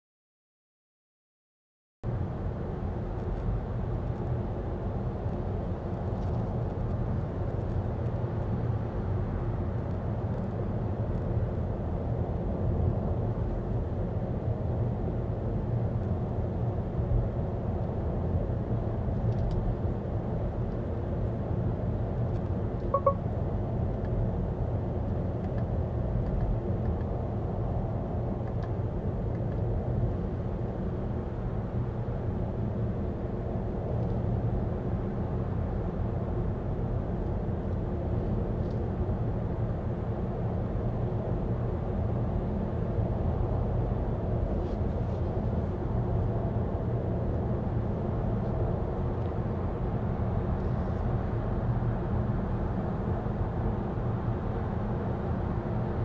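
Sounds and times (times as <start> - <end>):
road and tyre noise: 2.1 - 23.2, 23.8 - 56.0
short beep: 23.0 - 23.2.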